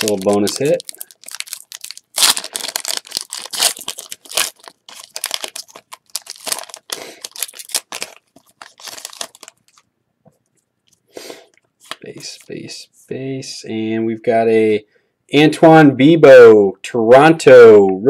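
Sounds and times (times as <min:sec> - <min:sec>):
foil wrapper tearing and crinkling: 0:00.0 - 0:09.8.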